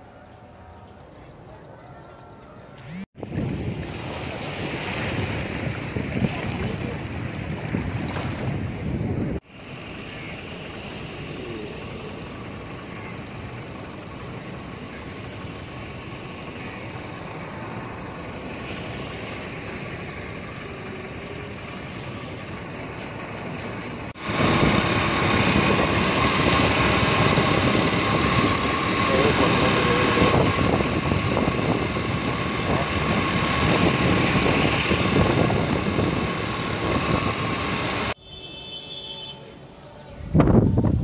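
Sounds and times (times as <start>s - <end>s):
outdoor hum: 0.0s - 4.5s
highway traffic noise: 0.0s - 41.0s.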